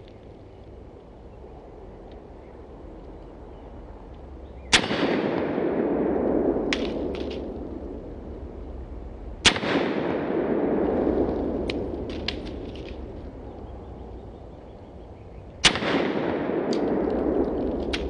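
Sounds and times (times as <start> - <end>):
rolling echo: 0.0 - 18.0
pistol shots: 4.7 - 7.5, 9.4 - 12.9, 15.6 - 18.0.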